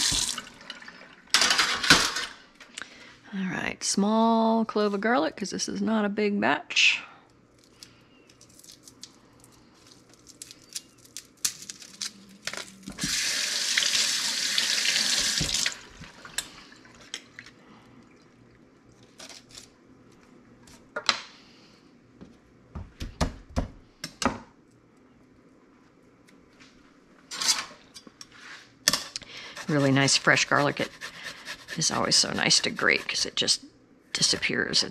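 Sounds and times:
garlic skin rustling: 0:07.5 - 0:13.2, 0:29.4 - 0:33.3.

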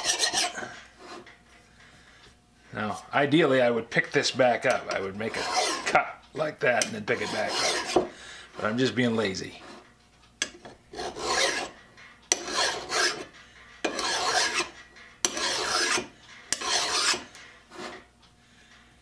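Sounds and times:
hand file rasping on metal: 0:00.0 - 0:01.3, 0:04.6 - 0:06.0, 0:06.8 - 0:08.7, 0:10.4 - 0:18.0.

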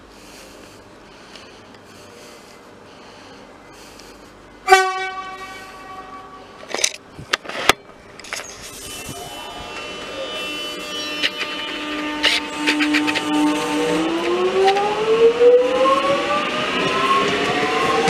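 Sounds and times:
train horn toot: 0:04.6 - 0:06.6, 0:08.7 - 0:14.8.

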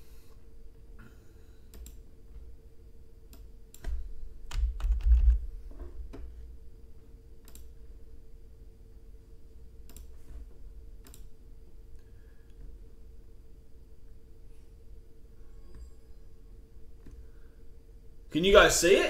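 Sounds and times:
computer keyboard keys tapping: 0:03.3 - 0:05.5.

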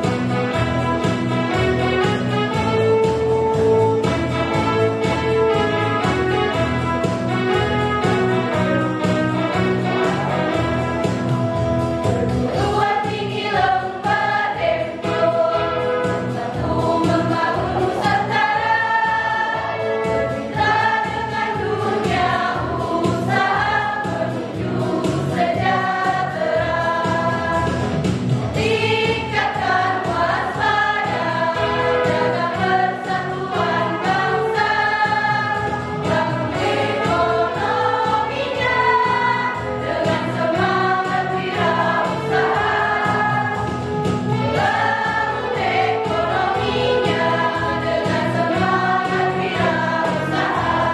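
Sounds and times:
choir of women singing: 0:12.5 - 0:28.0, 0:28.6 - 0:43.7, 0:44.5 - 0:50.9.

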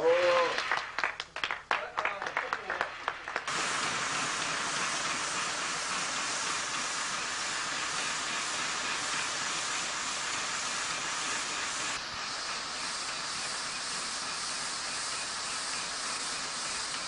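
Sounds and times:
steam hissing: 0:03.5 - 0:17.0.

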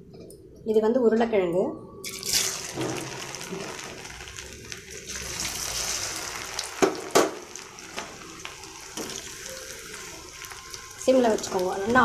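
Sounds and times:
oil sizzling and bubbling: 0:02.0 - 0:12.0.

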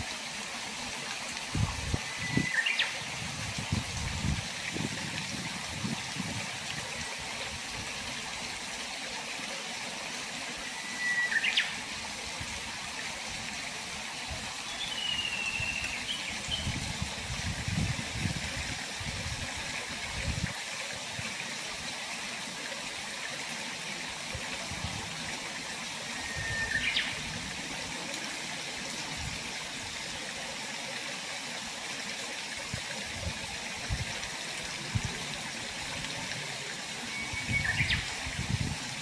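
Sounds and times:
water rushing down concrete channel: 0:00.0 - 0:39.0.

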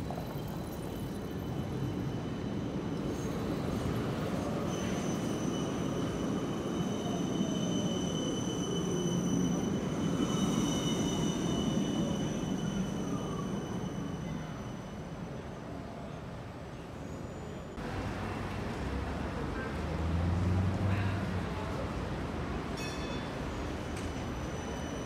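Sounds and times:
high steady squeal: 0:00.7 - 0:15.5.

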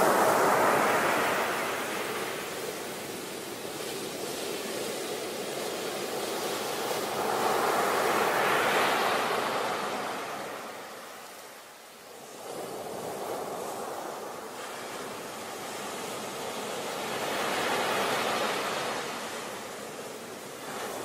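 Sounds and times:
ocean waves breaking: 0:00.0 - 0:03.6, 0:05.7 - 0:11.2, 0:12.2 - 0:21.0.

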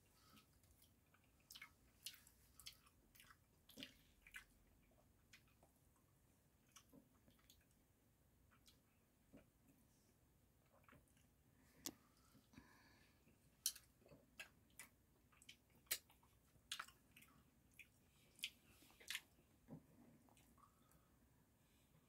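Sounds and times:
person chewing: 0:00.2 - 0:05.7, 0:06.6 - 0:07.8, 0:13.5 - 0:19.4
wet mouth clicks and smacks: 0:13.6 - 0:19.4.

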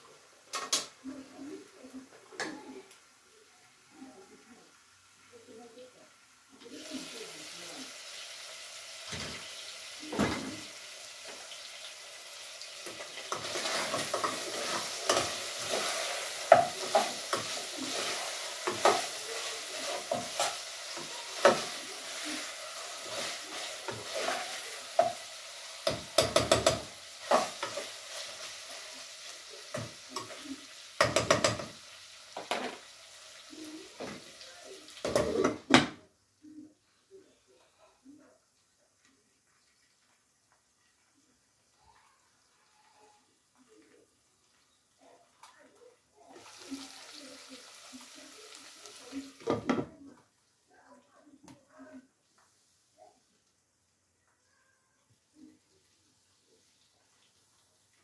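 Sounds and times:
meat sizzling in a pot: 0:00.0 - 0:36.7, 0:38.6 - 0:50.8, 0:55.3 - 0:58.0
utensil scraping a pot: 0:13.3 - 0:25.2.

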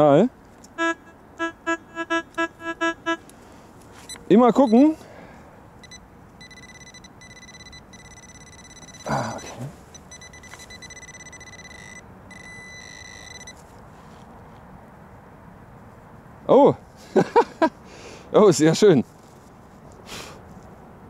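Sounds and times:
metal detector buzzing beep: 0:00.8 - 0:03.2, 0:05.8 - 0:13.6.

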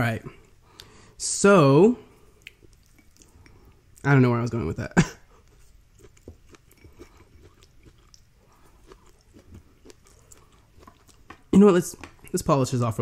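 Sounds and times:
person chewing food: 0:02.0 - 0:04.1, 0:05.2 - 0:12.5
soft mouth clicks: 0:02.4 - 0:03.4.

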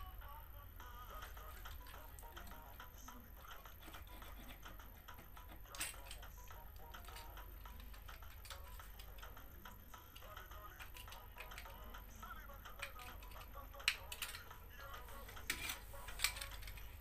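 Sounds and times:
metal file scraping plastic: 0:03.5 - 0:06.2, 0:15.1 - 0:16.9.

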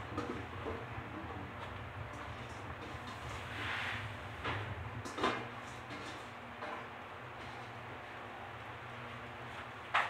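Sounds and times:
gas burner hiss: 0:03.1 - 0:04.4.

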